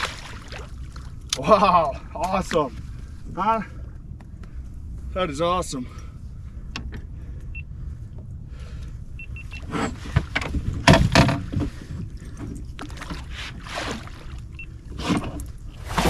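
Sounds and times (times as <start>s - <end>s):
water splashing and sloshing: 0.0s - 3.9s, 9.2s - 16.0s.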